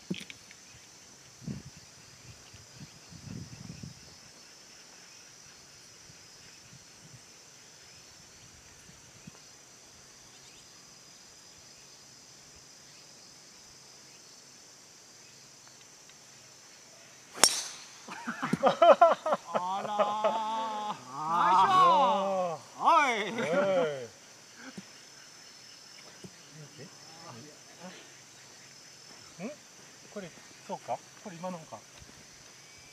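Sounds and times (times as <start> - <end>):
high-pitched insect chorus: 0.0 - 32.9
golf ball struck by driver: 17.4 - 18.1.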